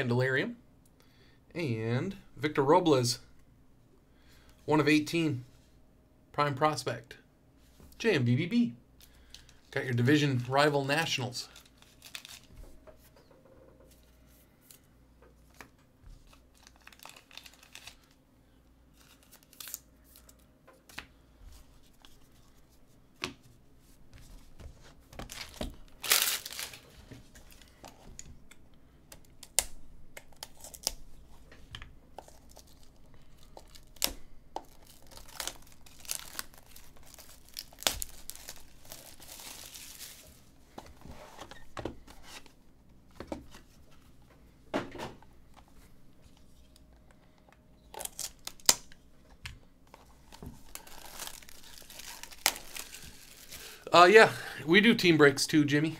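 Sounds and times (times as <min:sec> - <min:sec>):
packaging crinkling and tearing: 0:11.5 - 0:12.6, 0:16.2 - 0:18.2, 0:18.9 - 0:20.4, 0:25.2 - 0:27.9, 0:29.4 - 0:31.0, 0:32.2 - 0:40.4, 0:47.9 - 0:49.0, 0:50.0 - 0:53.8.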